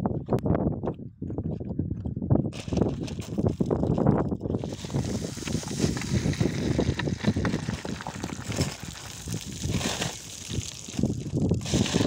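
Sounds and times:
wind buffeting microphone: 0.0 - 12.0
footsteps on loose scree: 2.5 - 12.0.

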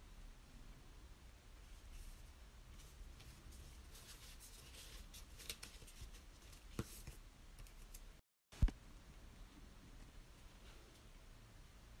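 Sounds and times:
paper sticker sheet rustling: 2.8 - 8.0.

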